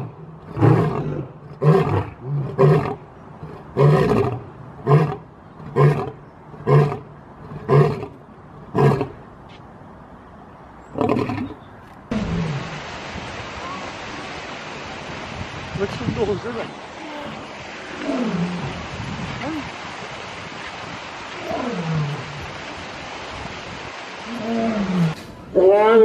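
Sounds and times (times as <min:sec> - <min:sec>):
steady hiss: 0:12.1 - 0:25.4
lion roaring: 0:24.3 - 0:26.0.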